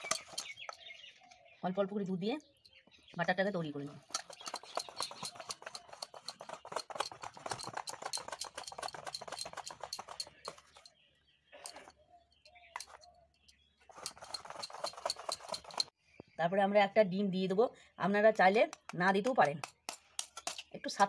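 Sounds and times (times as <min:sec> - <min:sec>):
whisk clicking against metal bowl: 0:04.0 - 0:10.9.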